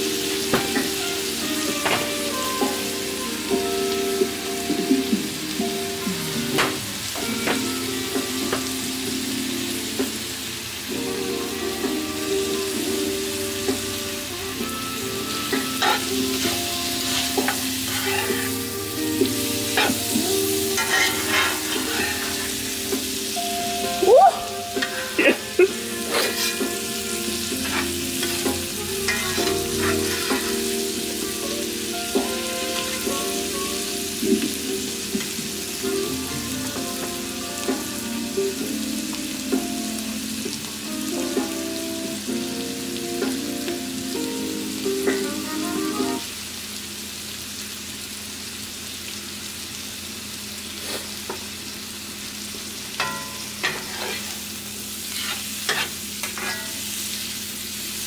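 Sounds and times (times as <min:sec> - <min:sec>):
onions sizzling in a skillet: 0:00.0 - 0:58.0
metal spatula scraping a pan: 0:15.2 - 0:19.0, 0:19.7 - 0:22.9, 0:25.7 - 0:31.0, 0:53.0 - 0:57.0.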